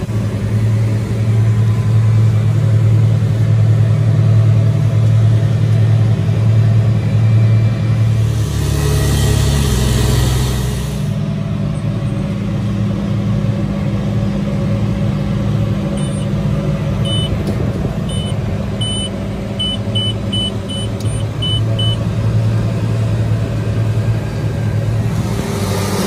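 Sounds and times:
tractor diesel engine running: 0.0 - 26.0
short high electronic beeps: 16.0 - 16.3, 17.1 - 17.4, 18.1 - 22.0.

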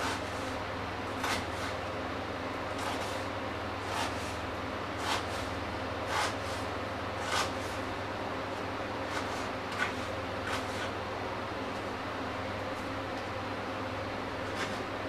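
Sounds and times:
knife chopping on wooden board: 1.2 - 1.7, 3.9 - 4.3, 5.0 - 5.4, 6.1 - 6.5.

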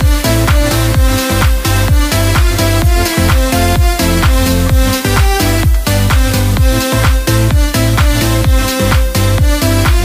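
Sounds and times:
electronic dance music: 0.0 - 10.0.

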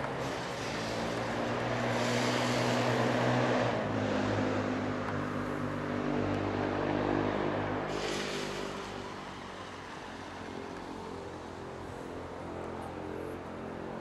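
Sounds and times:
tyres hissing through water: 0.0 - 4.2, 7.6 - 12.1
engine drone: 0.0 - 14.0.

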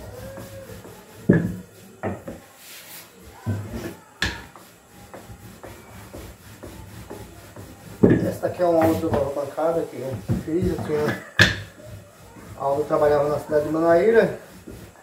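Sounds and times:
rolling pin rubbing dough: 0.0 - 15.0.

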